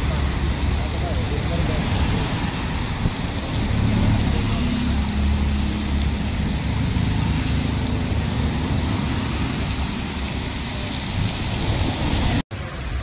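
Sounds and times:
heavy rain on pavement: 0:00.0 - 0:13.0.

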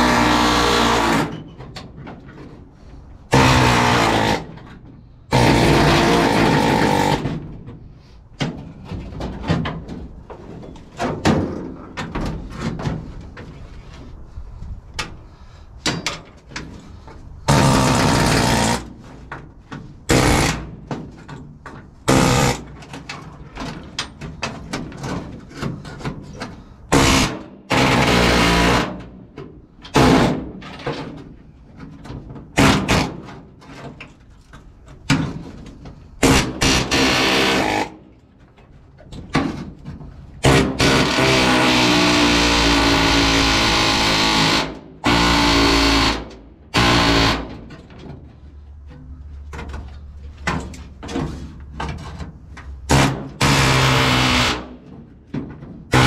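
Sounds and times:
pneumatic air hammer bursts: 0:20.1 - 0:20.8, 0:22.1 - 0:22.7, 0:36.2 - 0:38.0, 0:40.4 - 0:47.6, 0:52.9 - 0:54.8.

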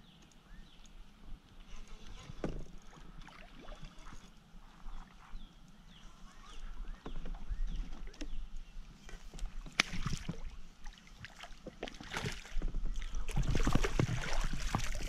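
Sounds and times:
fish thrashing and splashing: 0:12.0 - 0:15.0.

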